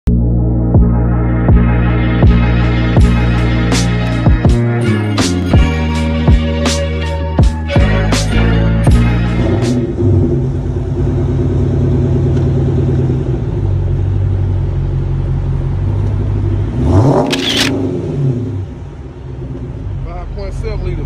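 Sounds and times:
engine revving: 7.7 - 20.7
car engine idling: 8.9 - 21.0.

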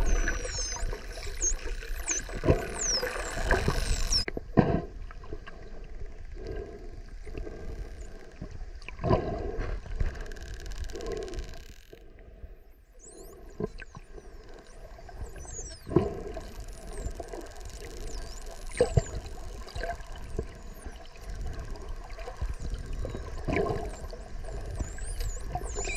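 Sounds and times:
dolphins whistling underwater: 0.0 - 4.3, 12.8 - 25.9
dull water noise: 0.0 - 25.9.

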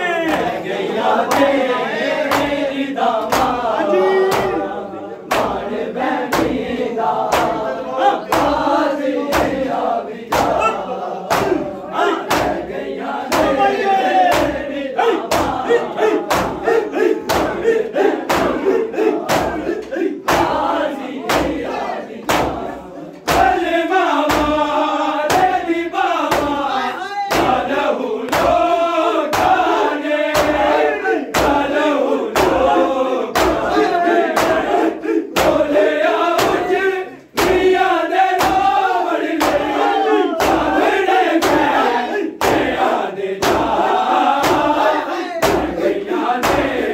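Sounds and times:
men chanting together: 0.0 - 46.9.

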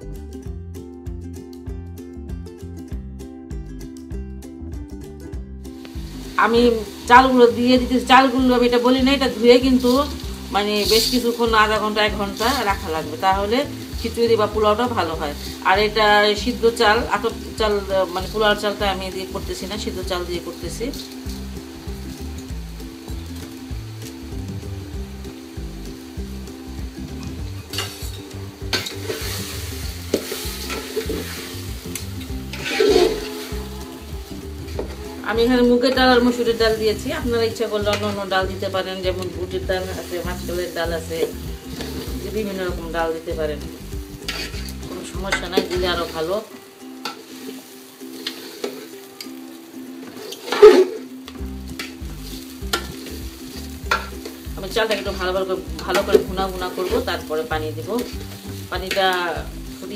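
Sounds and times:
low background music: 0.0 - 59.9
light sizzle of oil: 5.6 - 59.9
spoon stirring grains in metal pot: 8.7 - 12.8, 27.7 - 33.7, 44.1 - 46.4, 47.0 - 48.9, 51.7 - 57.0, 57.9 - 59.2.

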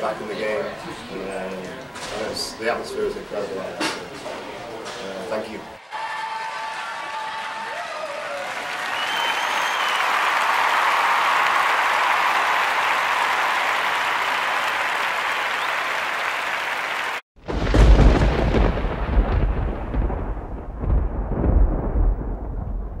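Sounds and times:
crowd applauding: 5.8 - 17.2
rolling thunder rumble: 17.4 - 23.0.

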